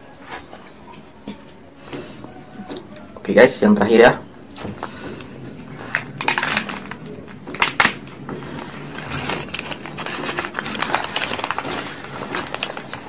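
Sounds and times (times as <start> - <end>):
paper crinkling and rustling: 4.5 - 13.0
sharp loud paper crackles: 4.7 - 13.0.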